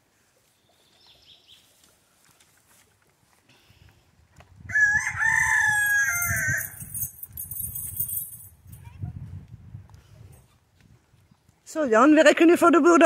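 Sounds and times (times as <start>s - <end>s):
rooster crowing: 4.7s - 6.8s.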